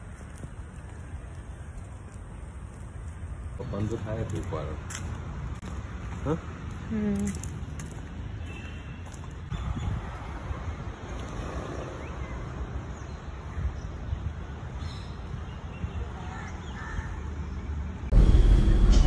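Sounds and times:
wind rumble: 9.0 - 16.2
loud music: 18.1 - 19.0.

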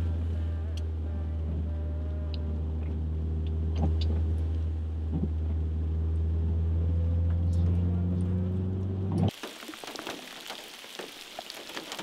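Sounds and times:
car cabin drone: 0.0 - 9.3.

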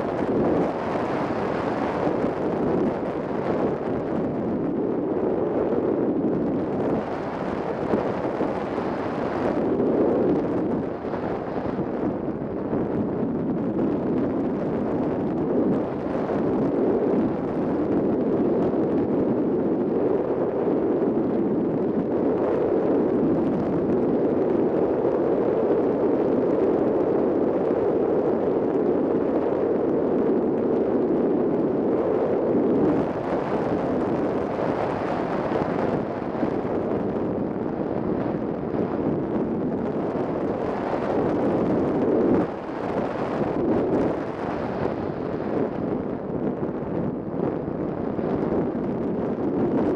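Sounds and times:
wind rushing past glider: 0.0 - 49.9.

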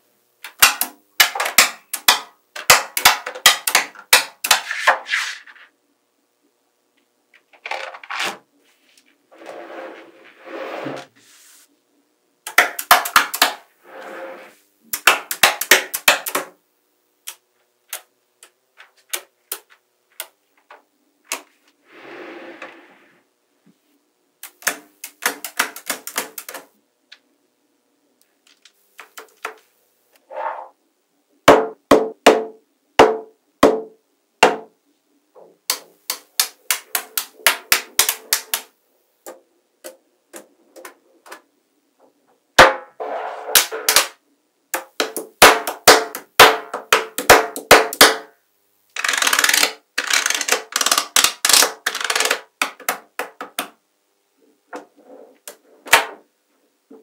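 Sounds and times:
magnetic balls clicking together: 12.4 - 13.6, 24.4 - 27.2, 48.9 - 53.8.

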